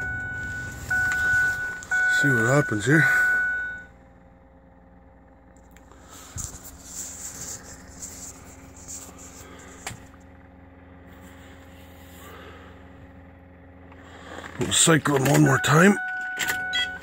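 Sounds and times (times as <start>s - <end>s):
faint electrical hum: 0.0s - 16.9s.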